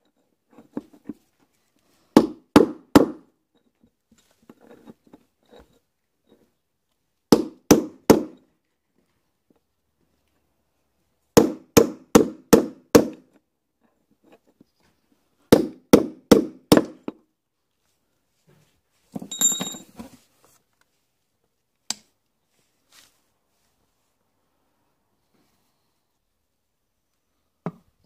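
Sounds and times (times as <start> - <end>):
metallic clatter with ringing: 19.2 - 20.0.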